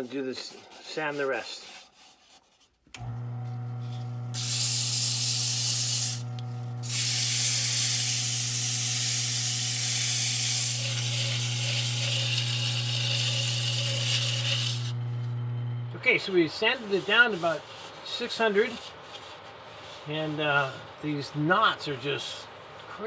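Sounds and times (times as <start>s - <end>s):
lathe motor humming: 3.0s - 6.9s, 10.3s - 16.1s
sandpaper hissing on spinning wood: 3.9s - 6.2s, 6.8s - 14.9s, 16.1s - 20.9s.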